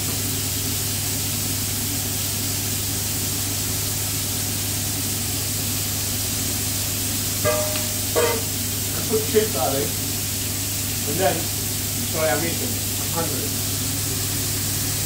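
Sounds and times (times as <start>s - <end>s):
chips frying in oil: 0.0s - 15.0s
short metallic clink: 7.4s - 8.5s.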